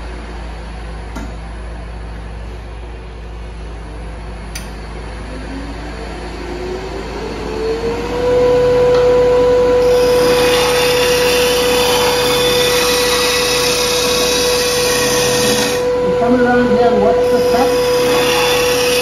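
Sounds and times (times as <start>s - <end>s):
lathe whine: 3.8s - 19.0s
hiss of tool cutting wood: 9.9s - 15.8s, 17.2s - 19.0s.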